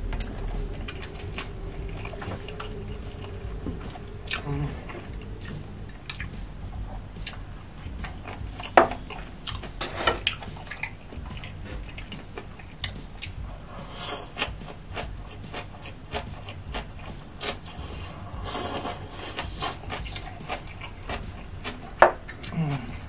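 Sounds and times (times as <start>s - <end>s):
wet chewing and mouth smacks: 0.1s - 6.4s.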